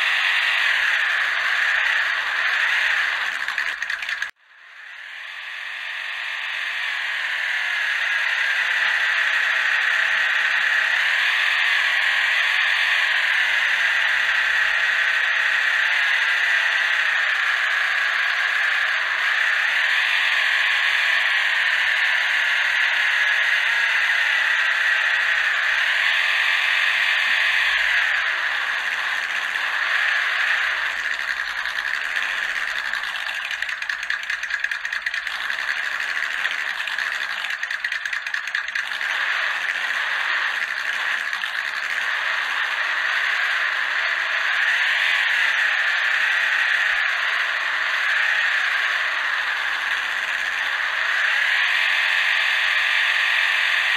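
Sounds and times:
electric motor whining: 25.7 - 42.9.

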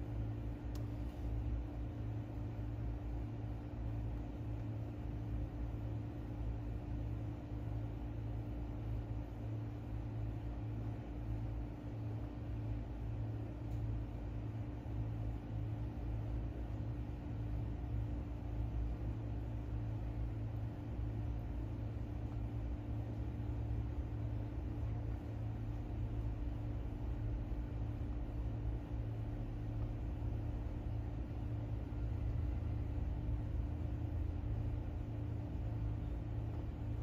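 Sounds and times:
low machine hum: 0.0 - 37.0.

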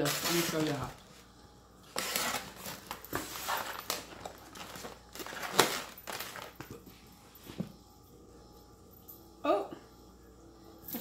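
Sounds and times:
foil crinkling: 0.0 - 6.8.

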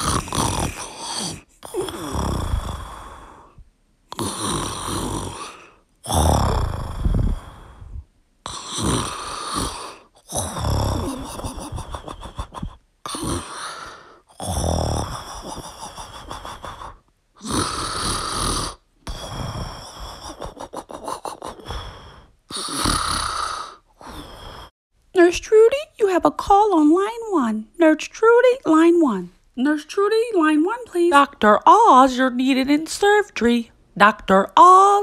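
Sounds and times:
dog snoring: 0.0 - 3.3, 4.1 - 7.8, 8.5 - 11.8, 13.1 - 15.9, 17.4 - 20.5, 21.7 - 24.7.

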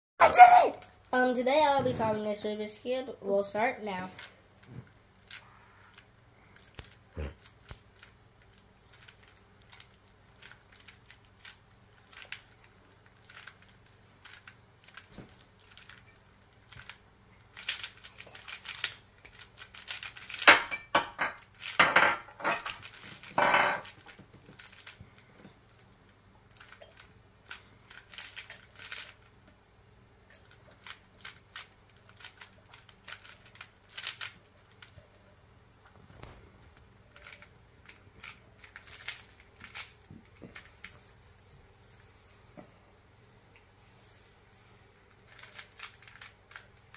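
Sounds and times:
plastic puzzle cube clicking: 30.8 - 34.9, 45.3 - 46.7.

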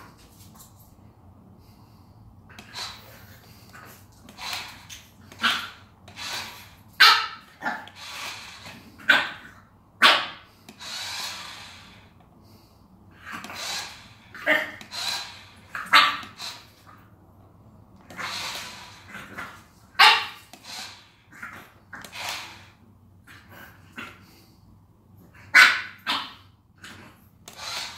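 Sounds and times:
puppy barking: 5.3 - 5.8, 7.0 - 8.0, 9.0 - 10.5, 15.8 - 16.4, 19.9 - 20.4, 25.5 - 26.5.

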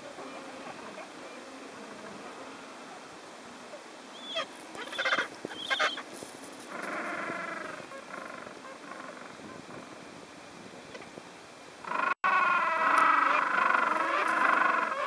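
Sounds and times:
penguin warbling call: 4.2 - 6.0, 11.8 - 15.0
penguins squawking: 4.4 - 6.0, 11.9 - 15.0.

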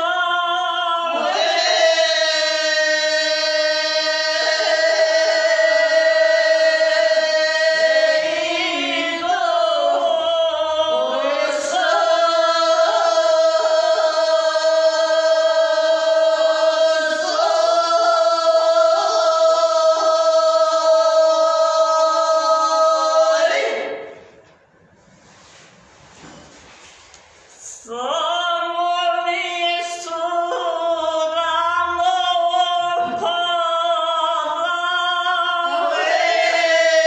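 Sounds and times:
women singing unaccompanied: 28.0 - 37.0.

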